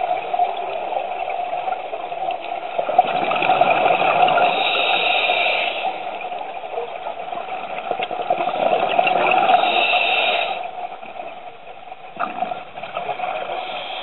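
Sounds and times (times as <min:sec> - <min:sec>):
underwater bubbling: 0:00.0 - 0:14.0
diver breathing through a regulator: 0:04.2 - 0:06.2, 0:08.6 - 0:10.8, 0:13.4 - 0:14.0.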